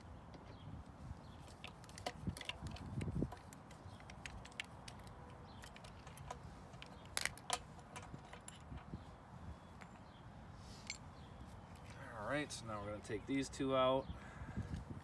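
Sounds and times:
small metal screws clicking: 0:01.4 - 0:08.9.

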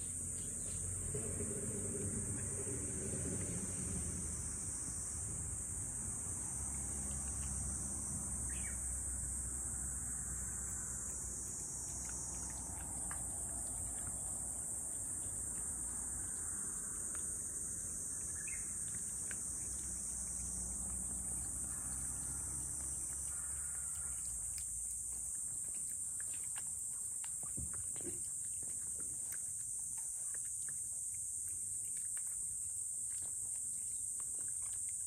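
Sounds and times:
insects chirring: 0:00.0 - 0:35.0
low background rumble: 0:00.2 - 0:25.3.

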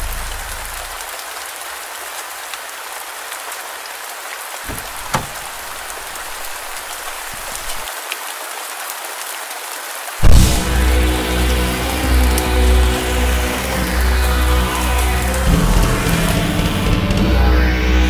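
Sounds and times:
rain on pavement and car: 0:00.0 - 0:17.2
short thump: 0:04.7 - 0:05.6.

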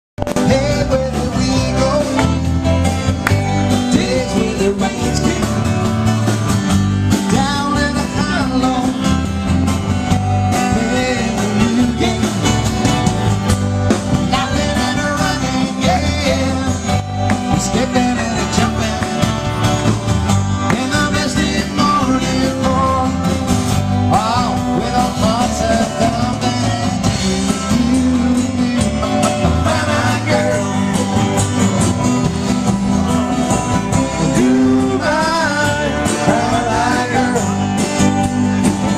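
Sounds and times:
man singing: 0:00.2 - 0:06.0, 0:07.1 - 0:09.4, 0:10.4 - 0:13.0, 0:13.9 - 0:19.6, 0:20.6 - 0:31.4, 0:33.8 - 0:38.2
drums: 0:00.2 - 0:38.9
electric bass: 0:00.2 - 0:38.9
strummed acoustic guitar: 0:00.2 - 0:38.9.

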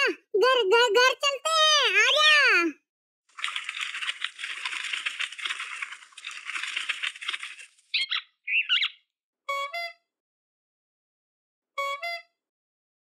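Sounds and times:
wings flapping: 0:03.3 - 0:08.2
chirping squawks: 0:07.9 - 0:09.0.

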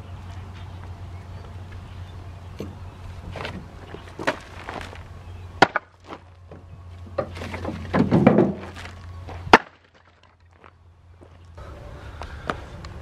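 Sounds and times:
firewood knocking on truck bed: 0:05.6 - 0:08.9.

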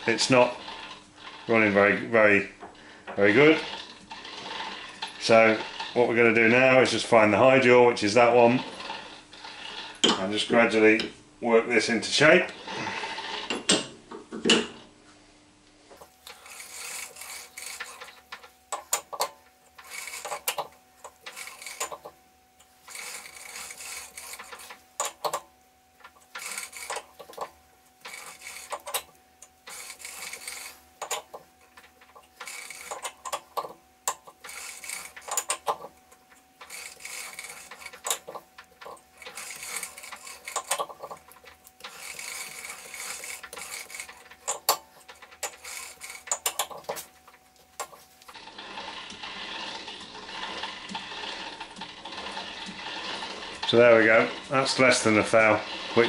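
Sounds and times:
faint steady hum: 0:11.0 - 0:48.3
chuck key clicking and scraping: 0:16.1 - 0:48.4.

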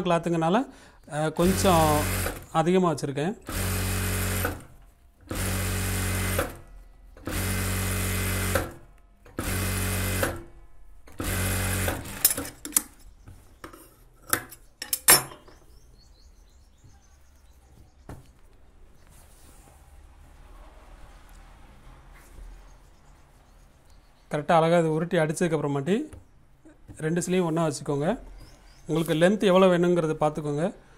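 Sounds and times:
sewing machine running: 0:01.4 - 0:02.6, 0:03.4 - 0:10.5, 0:11.1 - 0:12.5.

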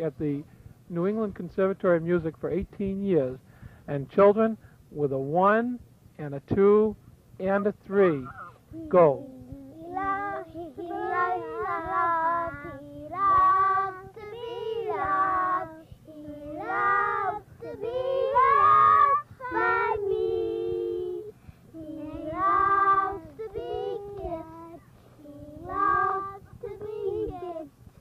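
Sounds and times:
children singing: 0:09.9 - 0:24.8.

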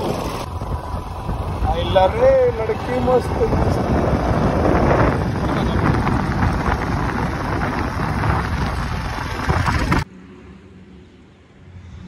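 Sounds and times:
motorcycle engine running: 0:00.0 - 0:10.1
wind buffeting microphone: 0:00.0 - 0:10.1.

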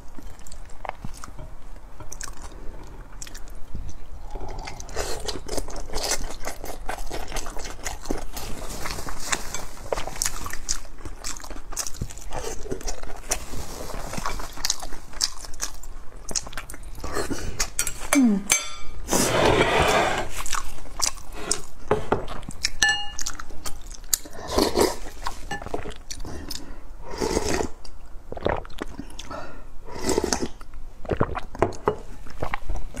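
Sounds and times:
chewing with wet mouth clicks: 0:00.1 - 0:08.4, 0:09.9 - 0:13.4, 0:14.3 - 0:17.9, 0:20.4 - 0:21.7, 0:22.3 - 0:24.4.

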